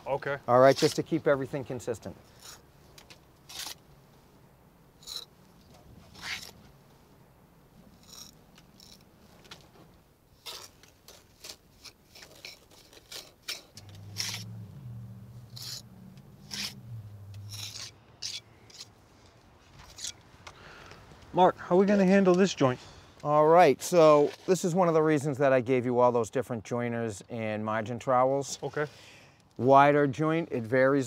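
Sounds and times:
trowel scraping mortar: 3.5 - 3.8, 6.1 - 6.6, 10.4 - 14.5, 15.5 - 16.8, 17.4 - 18.9.

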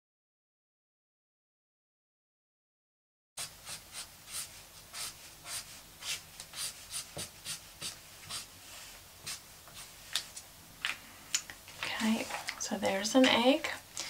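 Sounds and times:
marker scribbling on paper: 3.4 - 8.5.

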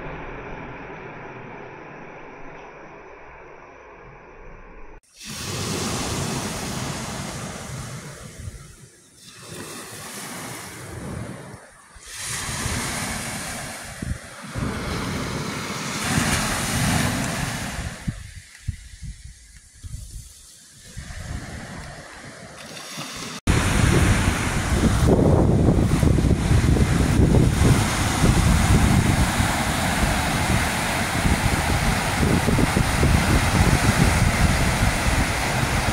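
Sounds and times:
waves washing over shingle: 5.0 - 18.6, 20.0 - 35.9
wind buffeting microphone: 10.8 - 35.9.

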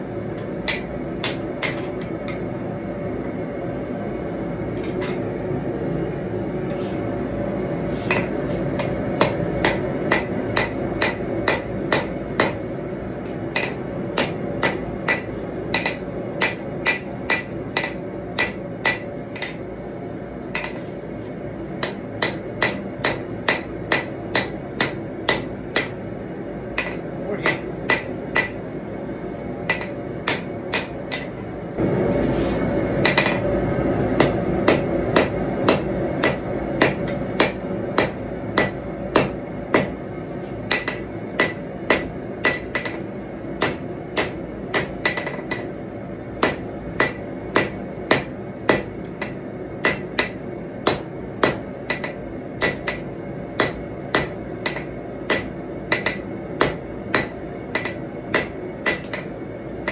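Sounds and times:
hammer striking steel on anvil: 0.4 - 2.4, 4.8 - 5.2, 8.1 - 12.6, 13.5 - 19.6, 20.6 - 20.8, 21.8 - 26.0, 26.8 - 28.6, 29.6 - 31.4, 33.0 - 33.5, 34.2 - 40.0, 40.7 - 43.0, 43.6 - 45.8, 46.4 - 59.3.

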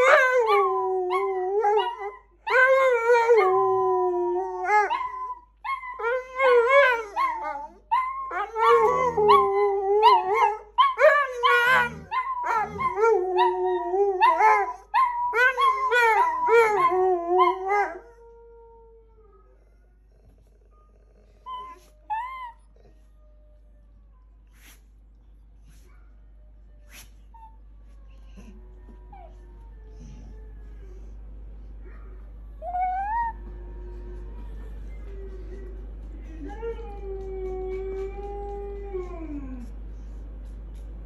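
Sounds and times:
dog howling: 0.0 - 19.1, 32.6 - 35.6.

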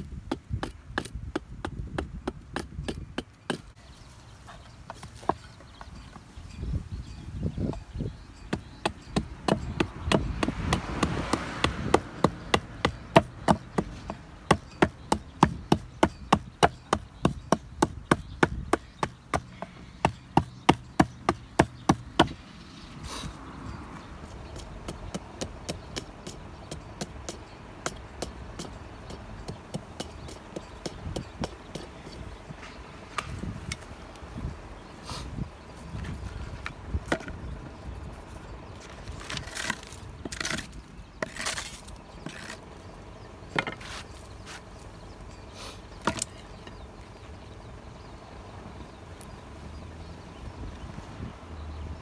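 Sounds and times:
hatchet chopping wood: 0.0 - 3.8, 8.5 - 22.4, 24.2 - 32.0, 46.0 - 46.4.

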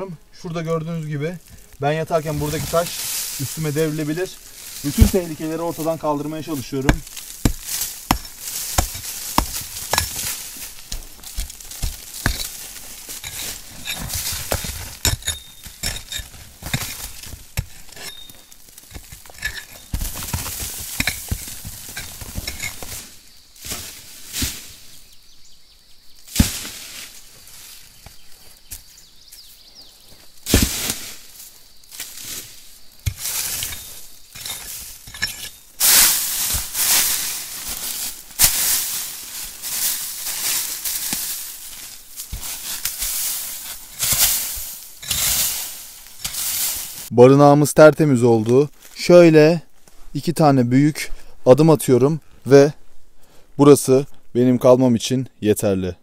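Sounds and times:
debris rustling as swept: 0.4 - 25.3, 26.1 - 47.1
scrapes and knocks: 1.4 - 24.7, 32.0 - 47.1.

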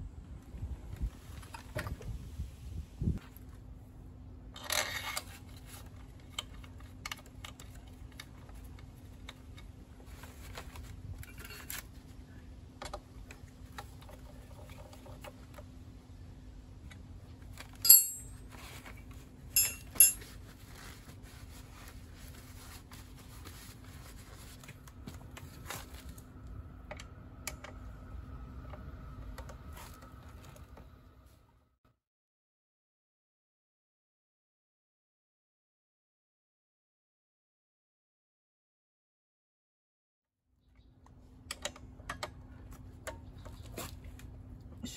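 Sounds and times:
metal tools clinking: 17.7 - 18.4, 19.6 - 20.4.

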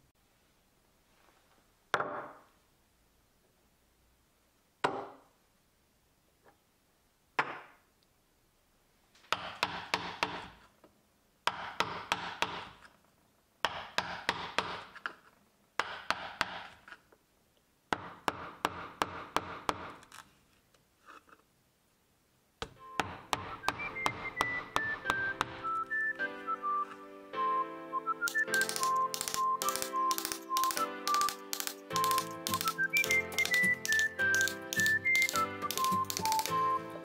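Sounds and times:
mallet tapping a chisel: 11.4 - 12.8, 15.8 - 16.8, 22.6 - 25.6, 28.3 - 36.5
scraping and tearing of tacks: 28.3 - 36.6.

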